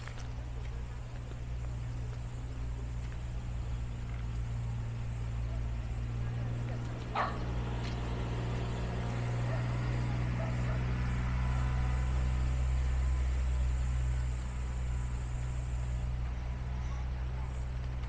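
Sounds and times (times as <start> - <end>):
vehicle engine droning: 0.0 - 18.0.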